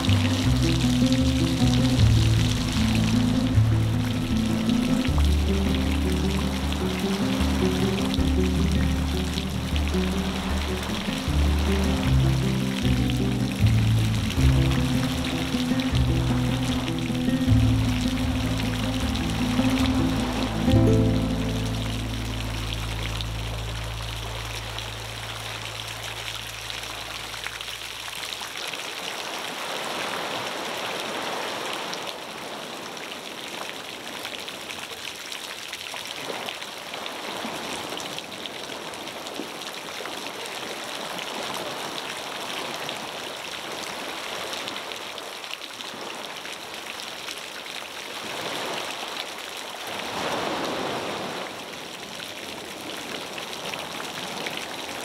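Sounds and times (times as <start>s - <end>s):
background music: 0.0s - 26.3s
waves washing onto stony beach: 0.0s - 55.0s.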